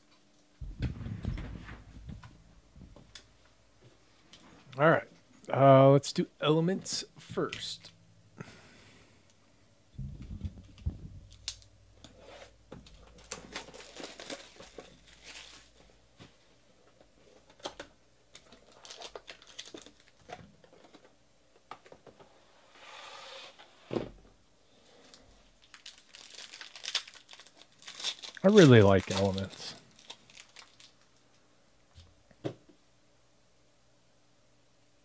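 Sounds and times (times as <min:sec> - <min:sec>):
louder knocks: 0:00.6 - 0:03.1, 0:10.0 - 0:11.6
packaging crinkling and tearing: 0:12.9 - 0:16.0, 0:18.3 - 0:20.3, 0:25.6 - 0:31.3.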